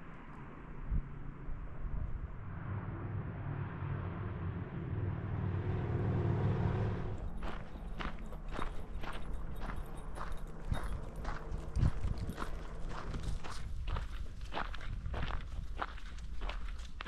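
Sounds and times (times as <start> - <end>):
vehicle engine rumble passing: 1.2 - 14.2
footsteps on trail: 7.3 - 17.0.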